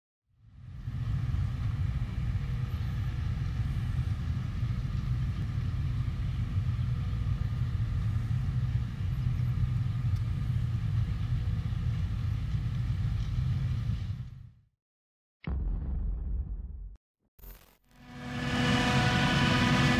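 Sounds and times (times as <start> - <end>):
faint steady whine: 0.4 - 14.1
low engine rumble of harvesting machinery: 0.4 - 14.1, 18.3 - 19.9.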